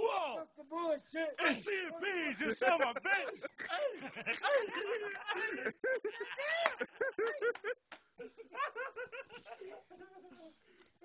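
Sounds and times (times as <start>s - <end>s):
men talking: 0.0s - 7.4s
men laughing: 1.4s - 10.0s.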